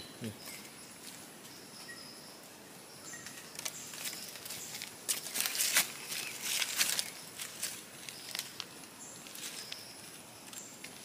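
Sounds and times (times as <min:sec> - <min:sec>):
dry leaves rustling and crackling: 0:03.5 - 0:11.0.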